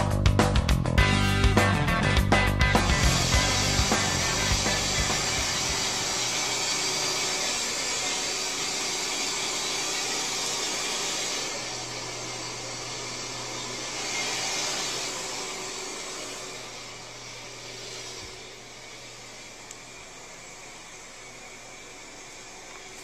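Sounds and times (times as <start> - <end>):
low hum: 1.1 - 8.1
small electric motor whirring: 2.8 - 23.0.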